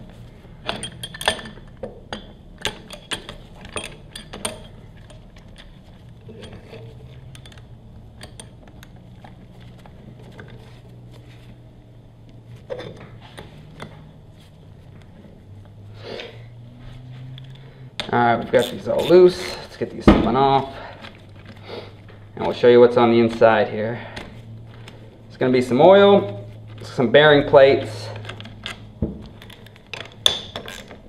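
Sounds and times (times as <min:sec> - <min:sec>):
handling sounds: 0:00.0 - 0:15.9, 0:16.6 - 0:31.0
wrench and bolts clinking: 0:00.6 - 0:09.6.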